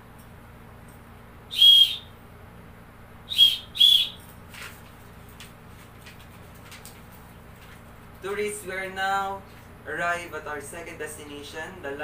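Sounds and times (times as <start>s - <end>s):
hand whistle blasts: 1.5s - 2.2s, 3.3s - 4.3s.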